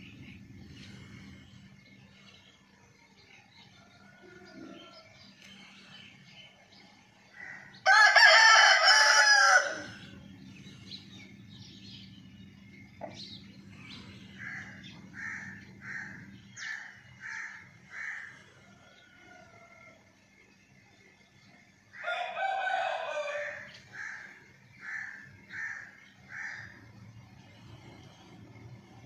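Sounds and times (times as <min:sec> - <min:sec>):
rooster crowing: 0:07.4 - 0:10.1, 0:22.0 - 0:24.2.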